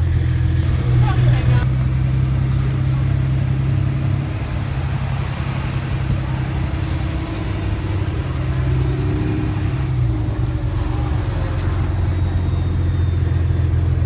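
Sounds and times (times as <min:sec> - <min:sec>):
engine rumble and road noise: 0:00.0 - 0:14.0.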